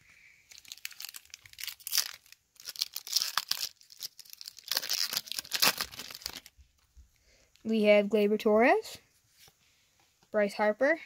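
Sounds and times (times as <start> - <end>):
wrapper tearing and crinkling: 0.5 - 6.6.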